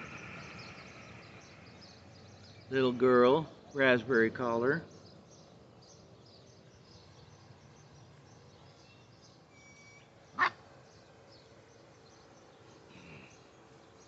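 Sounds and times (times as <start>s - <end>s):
faint bird chirps: 4.7s - 14.0s.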